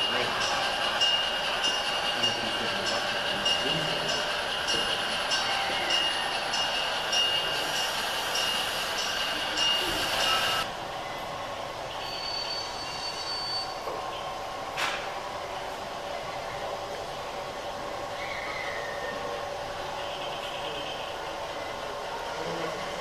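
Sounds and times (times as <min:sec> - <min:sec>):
model train running on track: 0:00.0 - 0:23.0
high wheel squeal: 0:05.3 - 0:10.6, 0:12.0 - 0:14.3, 0:18.1 - 0:19.4.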